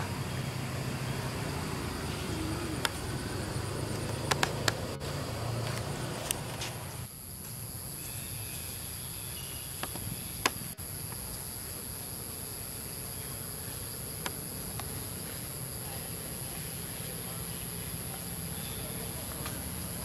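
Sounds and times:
insects droning: 0:00.0 - 0:20.0
sharp clicks: 0:03.9 - 0:04.8.

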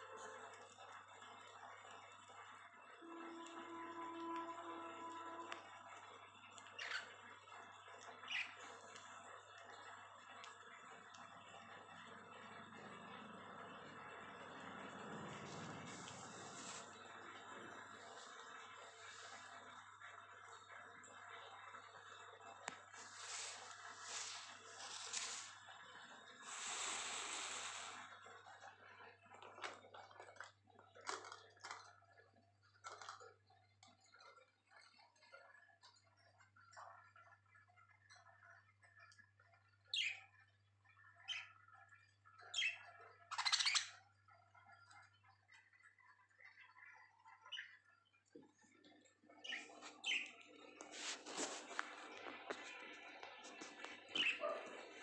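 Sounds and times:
birds nibbling leafy greens: 0:00.0 - 0:20.4, 0:22.0 - 0:28.4, 0:29.3 - 0:34.9, 0:48.3 - 0:55.0
budgerigar calls: 0:54.2 - 0:54.6.

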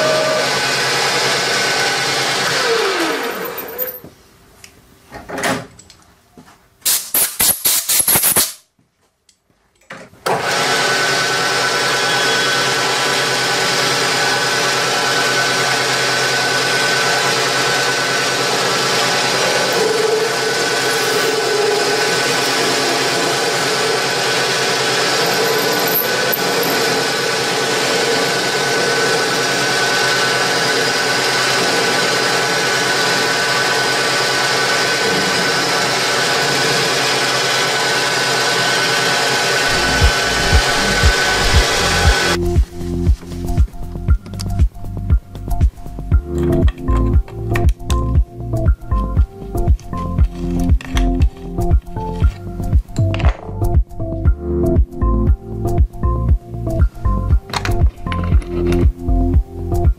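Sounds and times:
metal lathe running: 0:00.0 - 0:03.6, 0:10.4 - 0:42.4.

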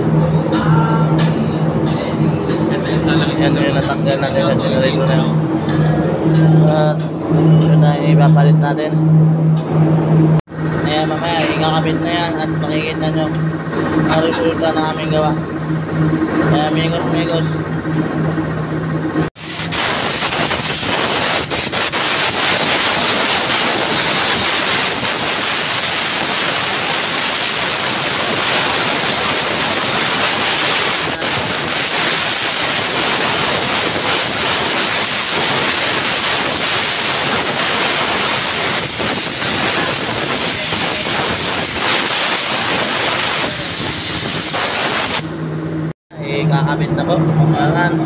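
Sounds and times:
compressed air hissing from blow gun: 0:19.4 - 0:45.4.

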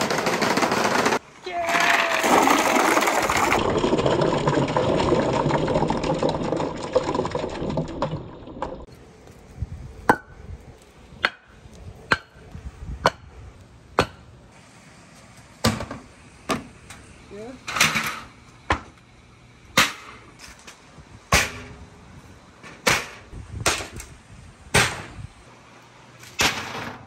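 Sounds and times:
balls clattering and splashing: 0:01.7 - 0:08.9.

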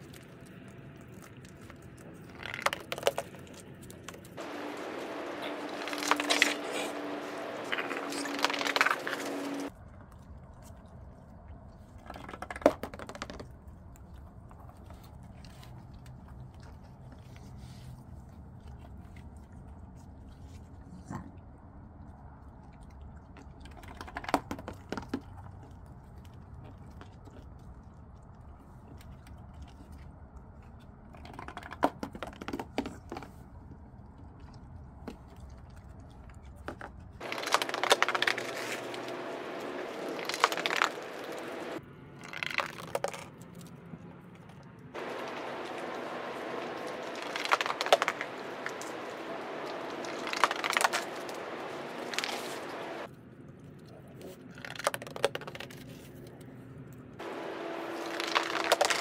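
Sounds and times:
raccoons crunching cookies: 0:00.0 - 0:59.0
steady low hum: 0:03.2 - 0:12.1, 0:33.4 - 0:42.1, 0:43.7 - 0:54.2.

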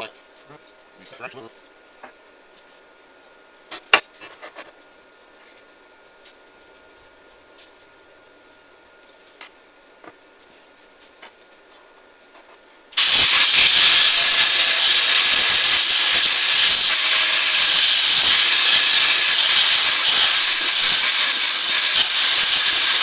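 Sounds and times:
cutting torch hissing: 0:13.0 - 0:23.0.

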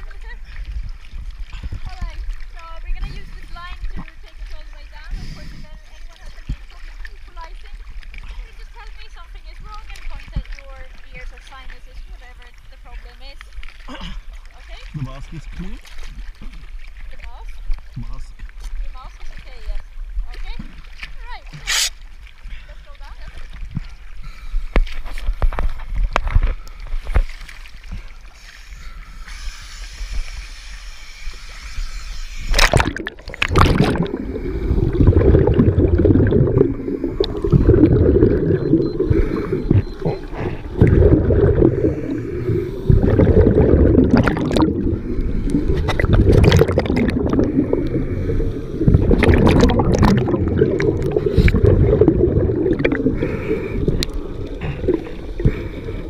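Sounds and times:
surface water: 0:14.4 - 0:22.4, 0:24.8 - 0:56.0
sharp pops underwater: 0:20.5 - 0:22.1, 0:32.5 - 0:39.0, 0:42.9 - 0:48.0, 0:48.8 - 0:53.2
splash: 0:32.4 - 0:56.0
muffled bubbles gurgling: 0:32.5 - 0:56.0.

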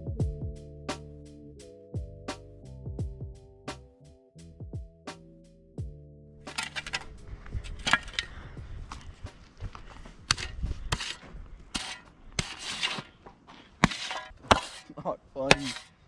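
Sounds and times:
metal shovel scraping dirt: 0:06.4 - 0:16.0.

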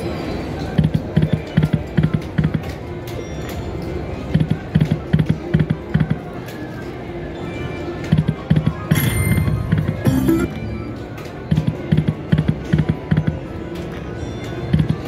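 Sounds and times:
electronic game music with low beat: 0:08.9 - 0:13.4.

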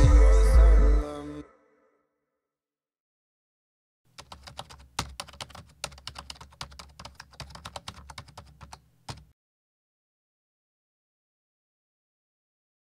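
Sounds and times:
rapid sharp clicks: 0:04.2 - 0:09.3.

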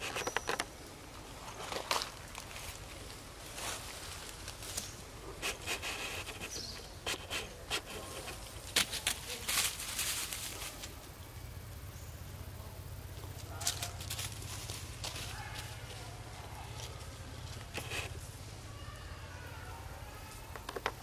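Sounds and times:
faint insect hum: 0:00.0 - 0:21.0
short rustles and scuffs: 0:01.5 - 0:11.0.

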